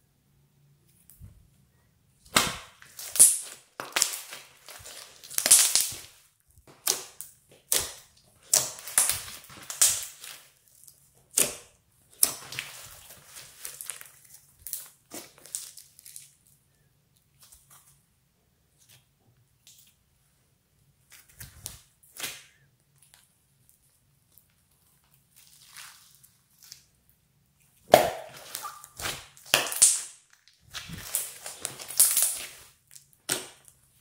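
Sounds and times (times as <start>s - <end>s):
slime crackling and popping: 2.3s - 16.4s, 27.8s - 33.8s.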